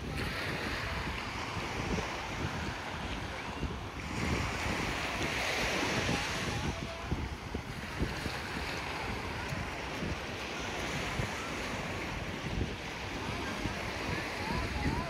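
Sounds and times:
surf washing onto sand: 0.0 - 15.0
wind on microphone: 0.0 - 15.0.

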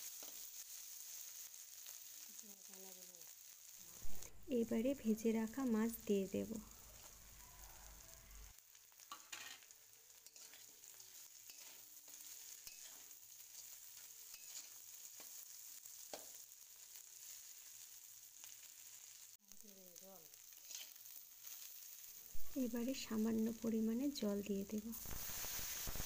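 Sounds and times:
food sizzling in oil: 0.0 - 26.0
metal spatula scraping a wok: 9.0 - 16.4, 20.5 - 22.2.

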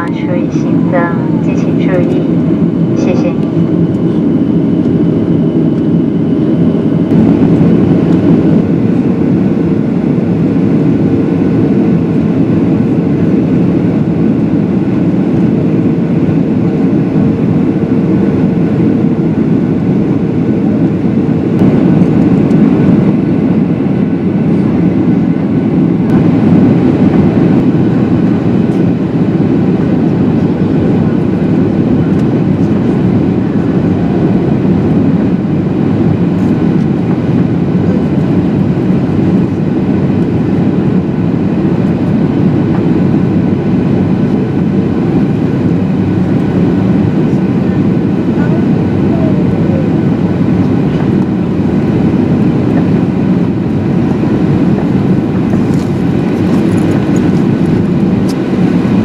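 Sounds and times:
thin steady hum: 0.0 - 9.2
airplane cabin airflow and engines: 0.0 - 59.0.

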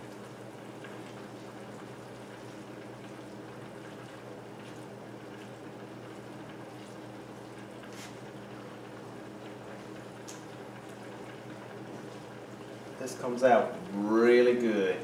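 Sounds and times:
stir fry bubbling hiss: 0.0 - 15.0.

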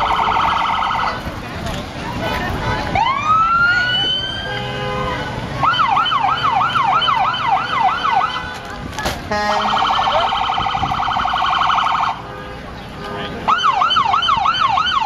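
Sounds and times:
electronic siren wailing: 9.5 - 12.2.

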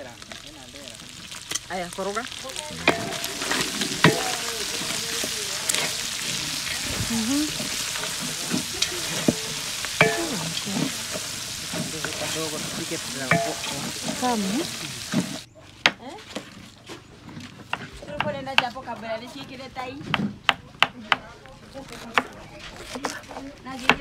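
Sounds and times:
meat sizzling in hot oil: 0.0 - 15.5
wooden spoon scraping pot: 0.2 - 20.5.

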